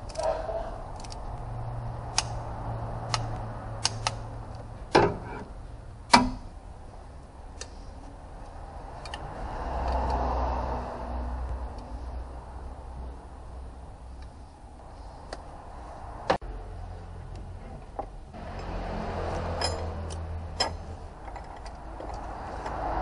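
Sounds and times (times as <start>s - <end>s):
metal tools clinking on engine parts: 19.4s - 22.2s.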